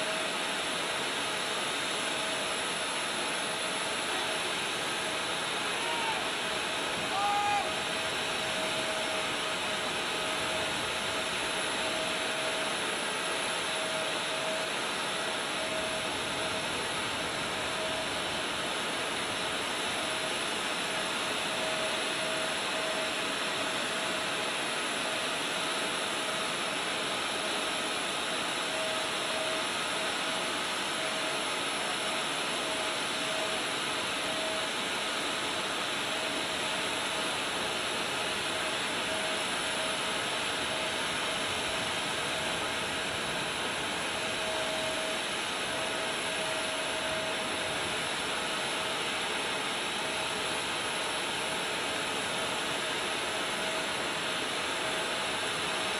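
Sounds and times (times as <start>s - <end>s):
jet turbine roaring: 0.0s - 55.9s
high whine: 4.0s - 12.8s.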